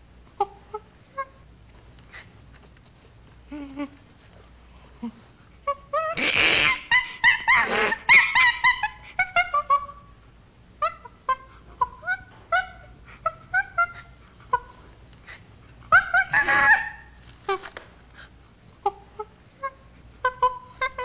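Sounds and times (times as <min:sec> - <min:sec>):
chimpanzee calls: 0:00.4 - 0:01.5, 0:05.0 - 0:10.1, 0:10.8 - 0:17.8, 0:18.8 - 0:21.0.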